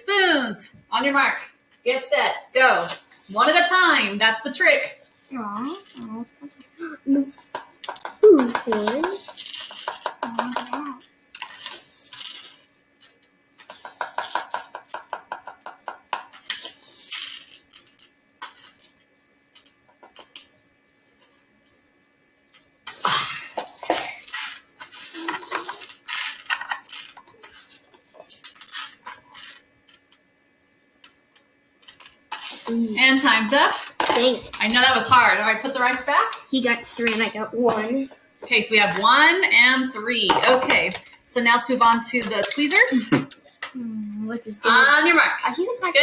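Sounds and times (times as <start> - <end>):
spoons scraping plastic tubs: 7.3 - 10.8, 13.6 - 19.0, 23.6 - 30.1, 31.8 - 43.7.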